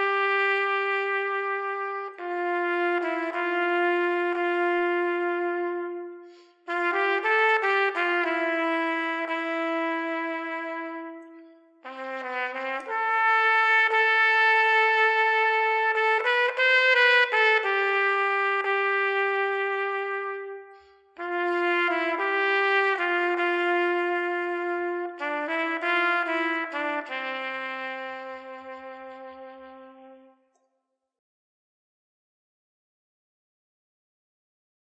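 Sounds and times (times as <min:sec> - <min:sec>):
solo trumpet melody: 0:00.0 - 0:30.5.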